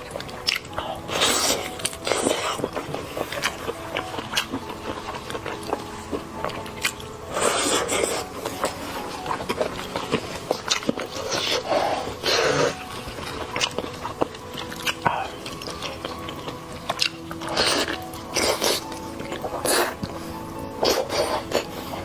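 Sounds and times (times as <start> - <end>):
wet chewing: 0.0 - 22.0
sucking noises: 7.2 - 8.9, 17.4 - 22.0.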